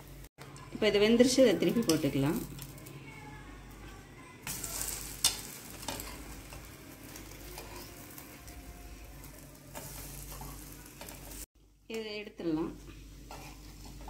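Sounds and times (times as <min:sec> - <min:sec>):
tongs clicking and scraping pan: 0:01.6 - 0:02.9, 0:04.5 - 0:08.3, 0:09.3 - 0:11.4, 0:13.3 - 0:14.0
pancakes sizzling in oil: 0:04.4 - 0:11.5, 0:12.9 - 0:14.0.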